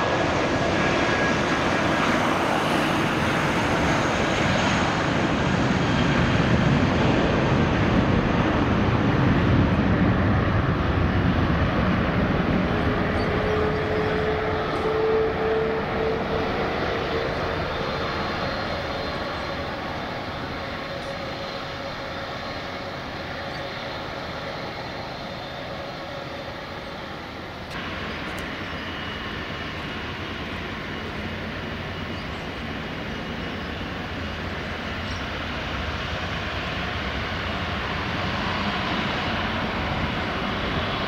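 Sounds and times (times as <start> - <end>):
jet engines rumbling: 0.0 - 41.0
steady whine: 0.0 - 41.0.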